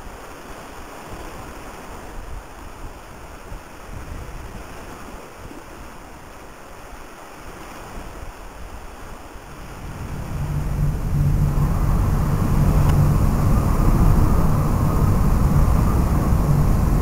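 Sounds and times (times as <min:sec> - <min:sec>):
wind buffeting microphone: 0:01.0 - 0:06.2, 0:07.8 - 0:17.0
rushing wind: 0:07.8 - 0:17.0.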